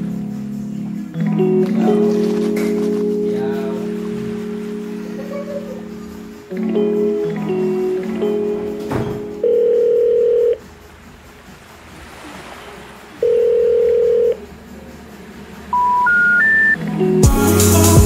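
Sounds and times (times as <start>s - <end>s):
music with held notes: 0.0s - 11.2s, 16.7s - 18.0s
telephone ringback tone: 9.4s - 10.6s, 13.2s - 14.4s, 15.8s - 16.8s.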